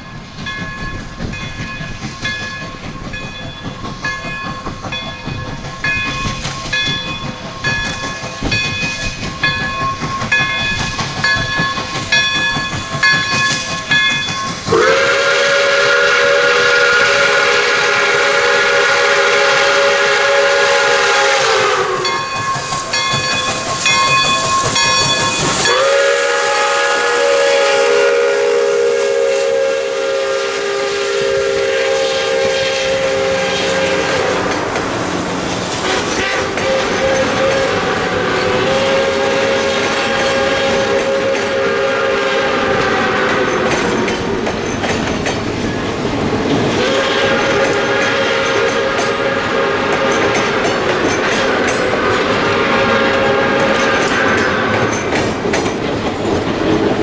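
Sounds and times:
train running: 0.0s - 57.0s
steam locomotive whistle: 13.5s - 44.4s, 46.6s - 55.1s
bell ringing: 22.0s - 25.8s.

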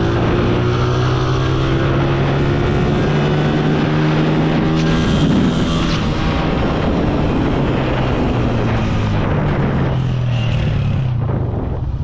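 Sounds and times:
motorcycle engines running hard: 0.0s - 12.0s.

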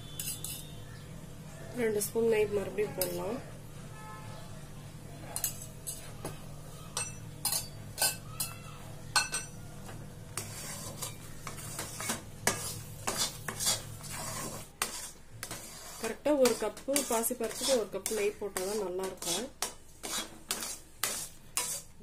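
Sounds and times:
steel ladle scraping metal pan: 0.0s - 0.8s, 10.4s - 21.9s.

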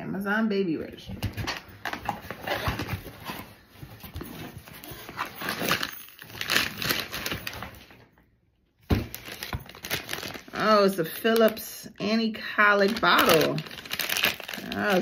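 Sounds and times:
cardboard and paper rustling: 1.1s - 8.1s, 8.8s - 11.6s, 12.8s - 15.0s.

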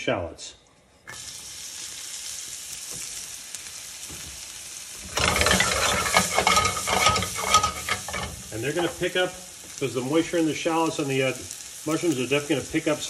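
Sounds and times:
mushrooms sizzling in a pan: 1.1s - 13.0s.

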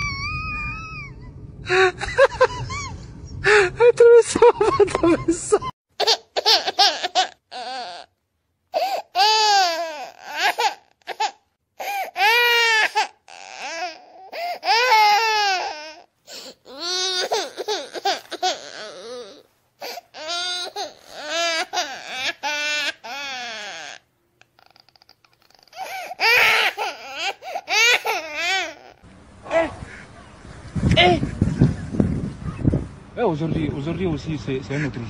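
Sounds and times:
person crying and wailing: 0.0s - 2.8s.

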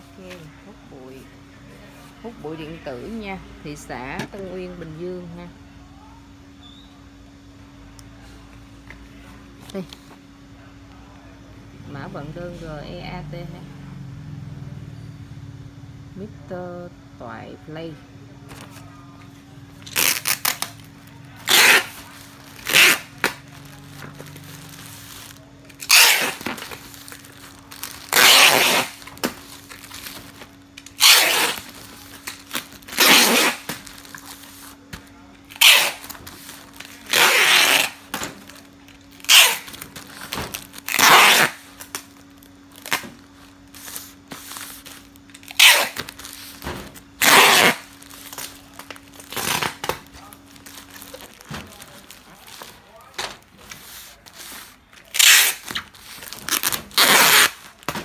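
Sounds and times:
steady low hum: 0.0s - 58.0s
plastic packaging crinkling: 19.7s - 58.0s.

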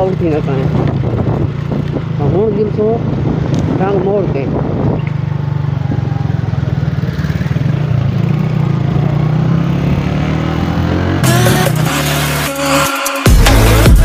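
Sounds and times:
motorcycle engine running: 0.0s - 12.5s
music: 11.2s - 14.0s.

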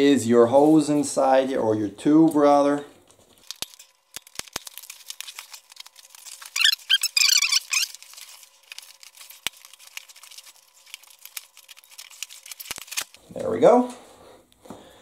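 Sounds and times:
tire bead squeaking against rim: 6.6s - 7.9s.

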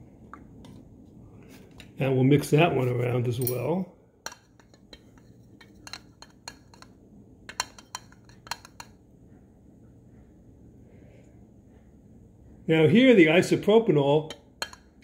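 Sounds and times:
spoon clinking in glass cup: 4.3s - 9.0s, 14.3s - 15.0s.

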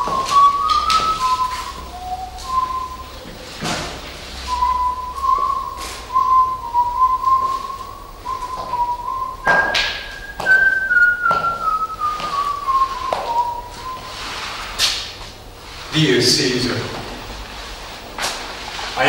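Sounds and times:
person whistling a tune: 0.0s - 3.3s, 4.4s - 14.4s
footsteps: 0.0s - 16.0s.

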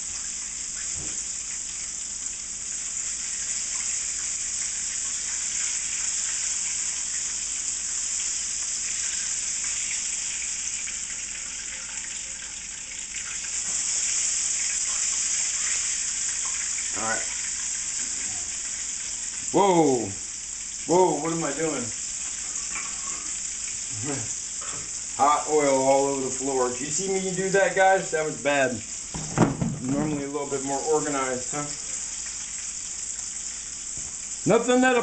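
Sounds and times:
chicken deep-frying in oil: 0.0s - 35.0s.

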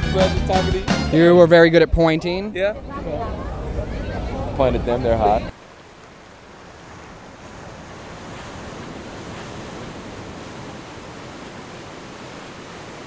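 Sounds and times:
waves breaking on shore: 2.8s - 13.0s.

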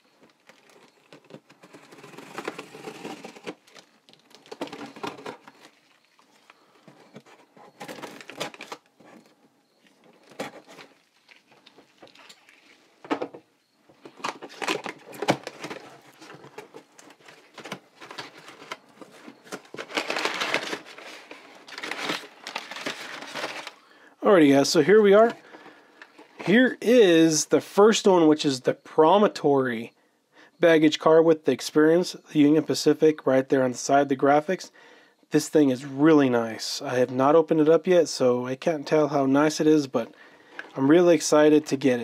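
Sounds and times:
packing paper crinkling: 0.2s - 9.3s, 10.0s - 13.0s, 14.0s - 24.0s.

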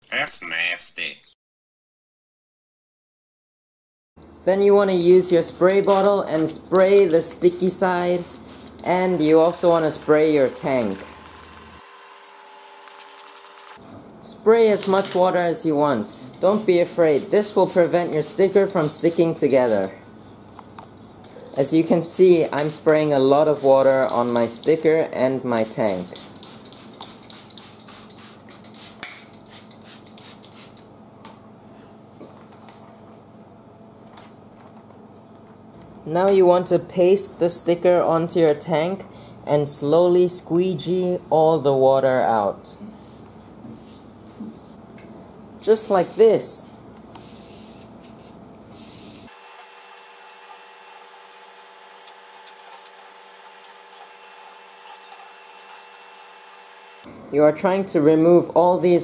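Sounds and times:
spray bottle squirting: 26.1s - 30.9s.

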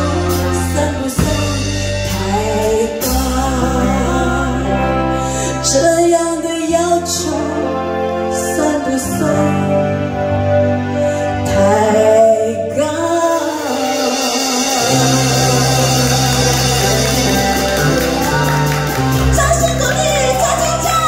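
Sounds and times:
woman singing pop ballad: 0.0s - 10.1s, 11.4s - 17.0s
keyboard accompaniment: 0.0s - 21.0s
low steady bass note: 14.8s - 19.8s.

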